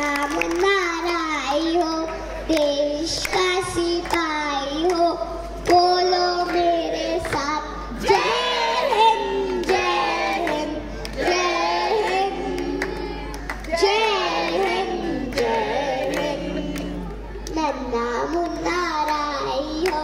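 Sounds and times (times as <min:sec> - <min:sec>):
girl singing into microphone: 0:00.0 - 0:09.8, 0:17.2 - 0:20.0.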